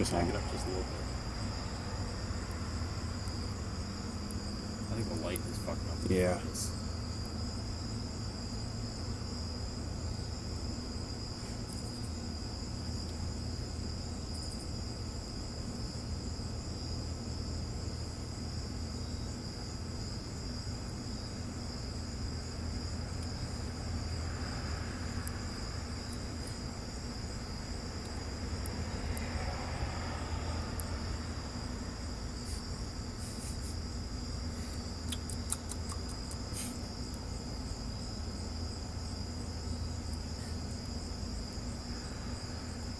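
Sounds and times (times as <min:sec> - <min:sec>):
crickets trilling: 0:00.0 - 0:42.9
steady low hum: 0:00.0 - 0:42.9
faint clicks: 0:34.7 - 0:37.2.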